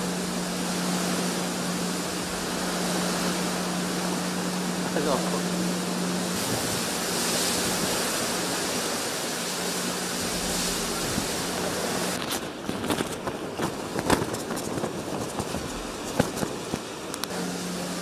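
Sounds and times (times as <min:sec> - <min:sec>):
heavy rain hissing: 0:00.0 - 0:18.0
low steady hum: 0:00.0 - 0:18.0
rain tapping near microphone: 0:00.0 - 0:18.0
wind: 0:00.0 - 0:18.0.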